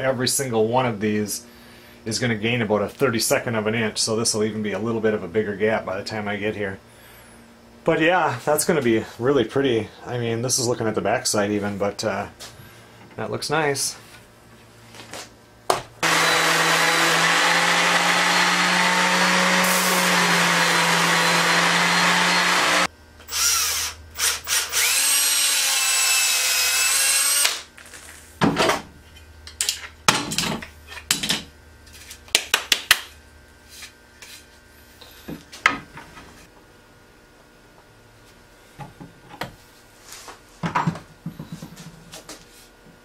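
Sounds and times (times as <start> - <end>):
cordless drill boring into wood: 16.0 - 27.7.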